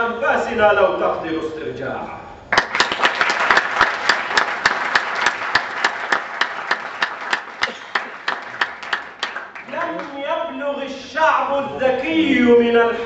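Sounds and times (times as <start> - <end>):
audience applause: 2.5 - 10.2
rhythmic clapping in unison: 2.5 - 10.2.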